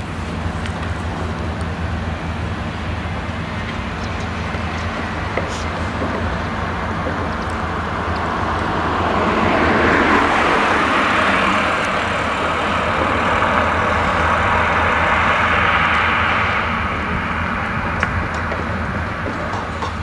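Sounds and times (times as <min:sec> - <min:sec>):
combine harvester engine hum: 0:00.0 - 0:20.0
car passing close by: 0:00.8 - 0:20.0.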